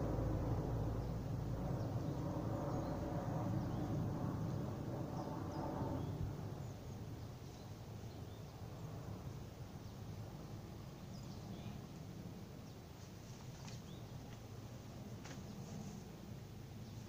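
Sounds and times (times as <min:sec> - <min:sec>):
low rushing noise: 0:00.0 - 0:07.2.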